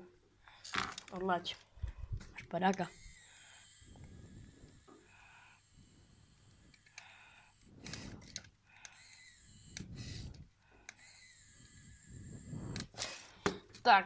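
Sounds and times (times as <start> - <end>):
pen motor running faintly: 2.2 - 13.4.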